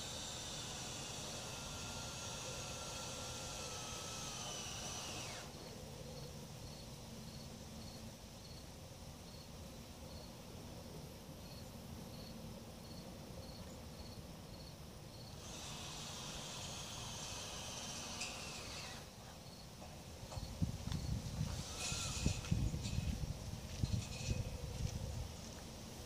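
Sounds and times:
faint outdoor hiss: 0.0 - 26.0
cricket chirping: 6.2 - 8.6, 9.2 - 9.5, 11.4 - 15.7, 19.4 - 19.7.

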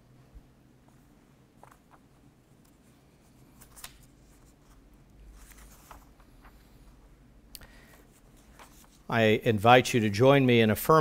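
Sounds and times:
paper rustling: 0.9 - 7.0, 7.8 - 9.1.

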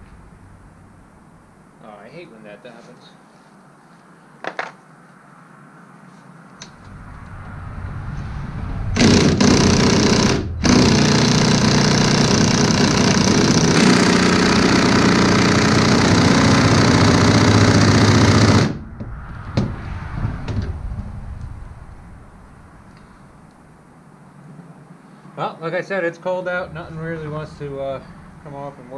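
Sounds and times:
impact wrench hammering: 9.0 - 18.8.

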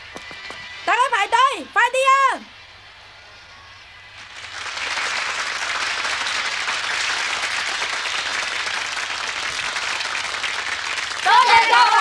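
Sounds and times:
large crowd applauding: 4.2 - 12.0.

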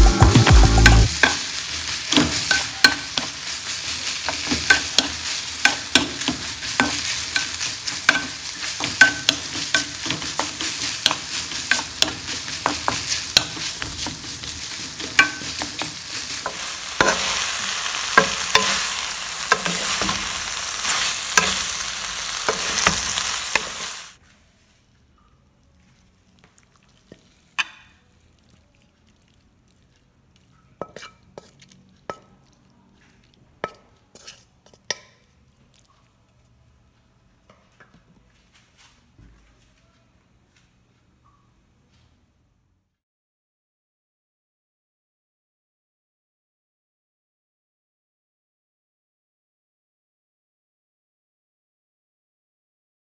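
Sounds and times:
vegetables sizzling in a pan: 0.1 - 24.2
spatula knocking and scraping pan: 0.2 - 24.0, 30.8 - 32.3.

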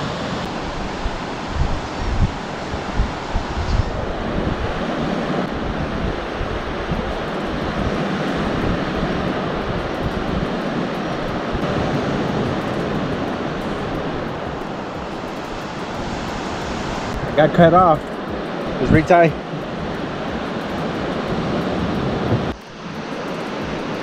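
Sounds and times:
wind rumbling on microphone: 0.0 - 24.0.

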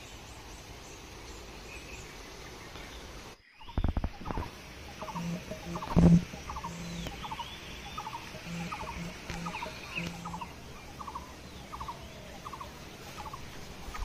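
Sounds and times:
faint high chirps: 3.5 - 14.0
animal trilling call: 5.0 - 7.4, 8.0 - 11.2.

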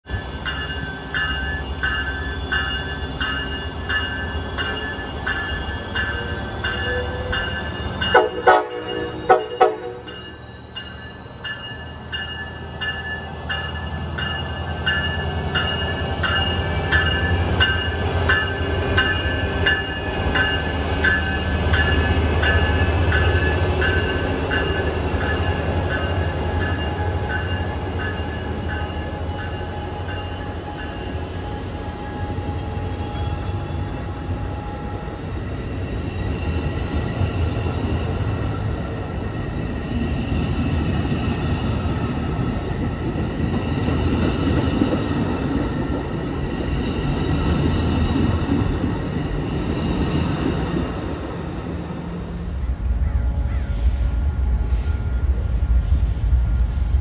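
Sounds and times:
train bell ringing: 0.0 - 56.0
train horn blasts: 8.1 - 10.2.

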